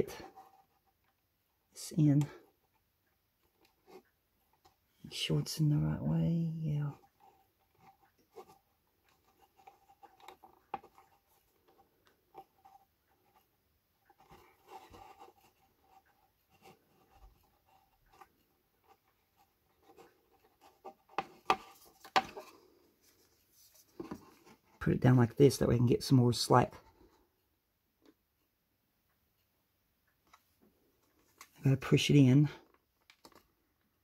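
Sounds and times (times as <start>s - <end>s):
hands rubbing plastic: 6.8s - 24.9s.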